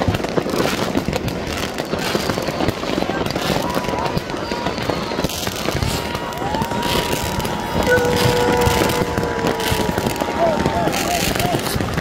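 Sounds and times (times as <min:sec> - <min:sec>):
fireworks crackling bangs: 0:00.0 - 0:12.0
whistling firework: 0:00.0 - 0:12.0.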